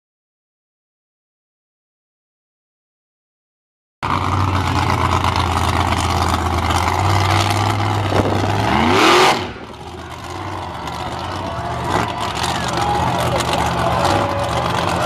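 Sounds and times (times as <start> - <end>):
monster truck engine revving: 4.0 - 15.0.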